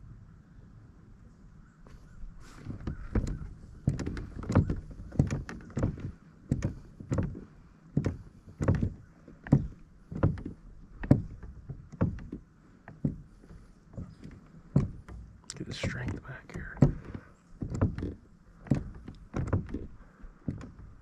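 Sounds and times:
water sloshing against kayak: 0:01.8 - 0:21.0.

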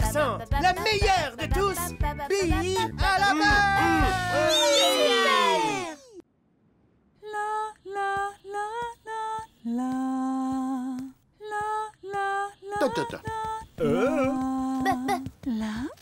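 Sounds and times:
female cartoon voice singing: 0:07.2 - 0:15.9.

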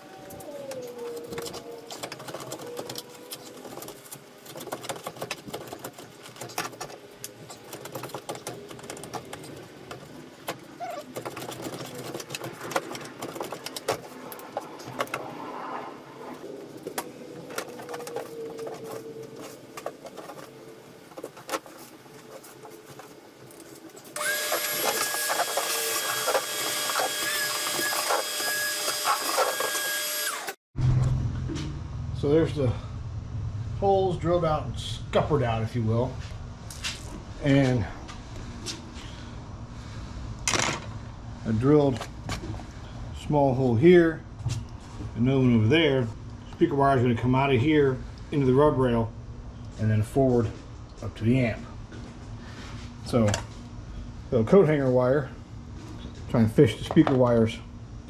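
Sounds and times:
shop vacuum whine: 0:24.0 - 0:31.6.

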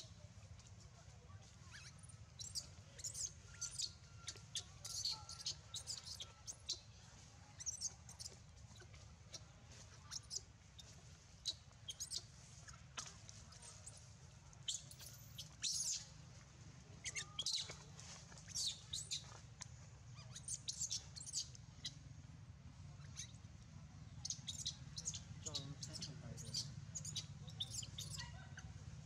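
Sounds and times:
baby monkey squeaking: 0:01.7 - 0:06.9, 0:07.6 - 0:09.5, 0:10.1 - 0:14.0, 0:14.6 - 0:16.1, 0:17.0 - 0:17.8, 0:18.4 - 0:19.3, 0:20.2 - 0:22.0, 0:23.0 - 0:23.4, 0:24.2 - 0:28.8
steady low hum: 0:17.7 - 0:29.0.

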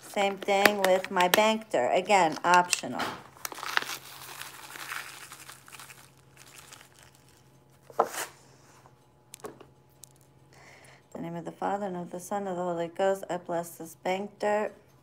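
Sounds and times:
plastic bag crinkling: 0:00.0 - 0:08.2.

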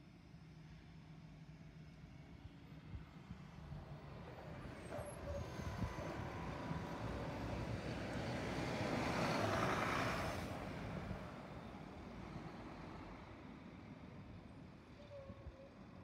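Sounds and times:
bus driving past: 0:03.0 - 0:15.0.

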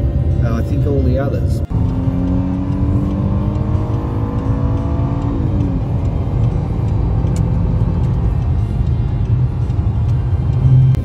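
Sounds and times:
car engine accelerating: 0:01.4 - 0:11.0
low tyre rumble: 0:01.4 - 0:11.0.

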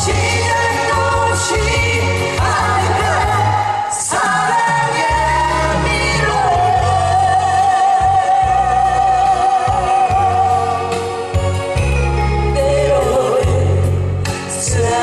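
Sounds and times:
group singing into microphones: 0:00.0 - 0:11.6, 0:12.5 - 0:15.0
amplified music with pulsing bass: 0:00.0 - 0:15.0.

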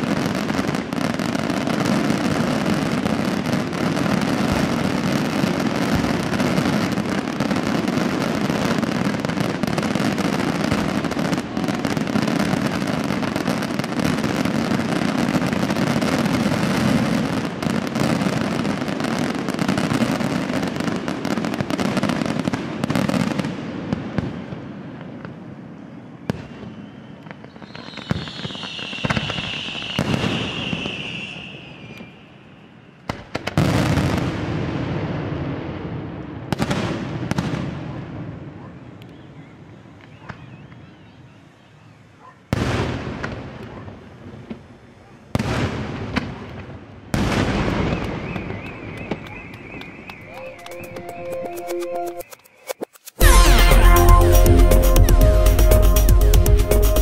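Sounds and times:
fireworks bursting and crackling: 0:00.0 - 0:40.9, 0:42.5 - 0:57.0
high whistle gliding down: 0:26.7 - 0:32.9, 0:48.0 - 0:57.0.

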